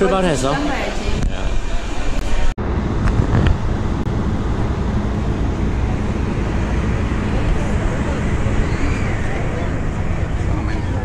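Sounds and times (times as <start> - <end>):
ferry engine rumble: 0.0 - 11.0
wind on microphone: 2.1 - 11.0.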